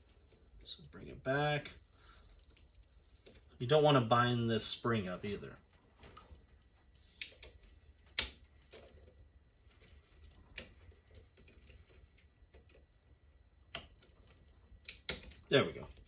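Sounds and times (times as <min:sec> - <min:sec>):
sharp clicks: 0:07.1 - 0:08.4, 0:14.8 - 0:15.5
small clicks and taps on plastic: 0:13.7 - 0:16.0.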